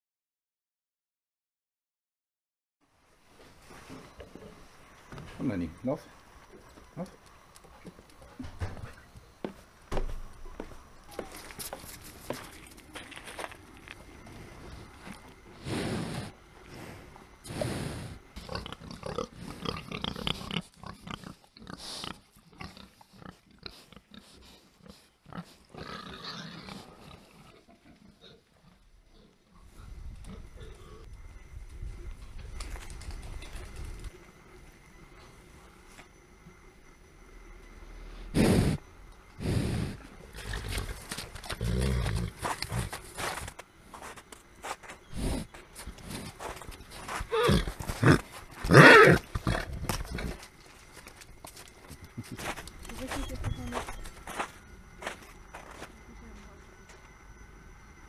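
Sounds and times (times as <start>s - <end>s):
pigs grunting and snuffling: 11.2s - 31.1s, 38.2s - 54.1s
animal blasts of breath: 38.2s - 38.8s, 39.4s - 40.1s.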